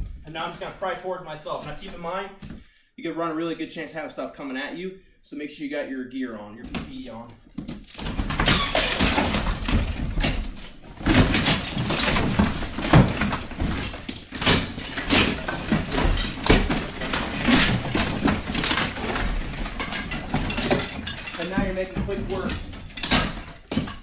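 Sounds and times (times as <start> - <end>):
plaster chunks breaking and falling: 6.8 - 24.0
wooden lath cracking and snapping: 6.9 - 24.0.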